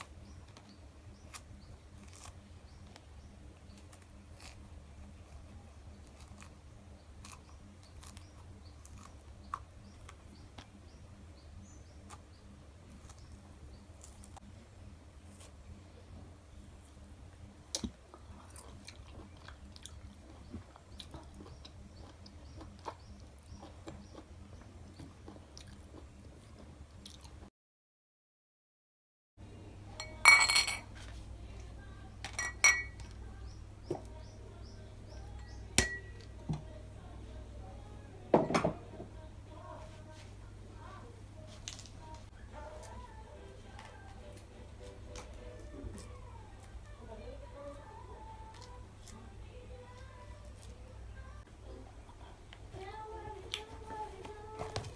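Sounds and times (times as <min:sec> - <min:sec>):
orange rind peeling crackles: 0:00.0 - 0:10.8, 0:12.0 - 0:14.5, 0:48.2 - 0:51.1
low steady hum: 0:29.4 - 0:54.9
dishes clattering with ringing: 0:30.0 - 0:30.9, 0:32.4 - 0:33.0, 0:35.8 - 0:36.2
plates and bowls clinking: 0:30.0 - 0:30.9, 0:32.3 - 0:33.0, 0:35.8 - 0:36.2, 0:38.3 - 0:38.8.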